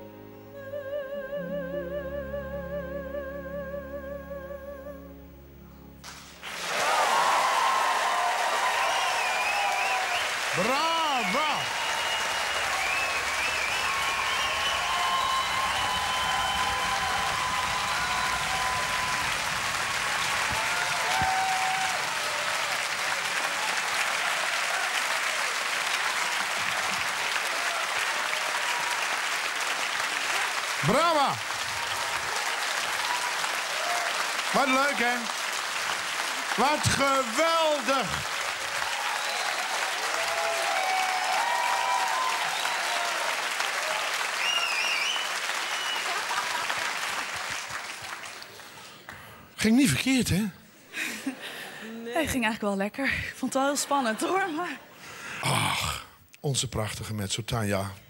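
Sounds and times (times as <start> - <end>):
crowd cheering: 6.0 - 50.0
audience applauding: 6.0 - 50.2.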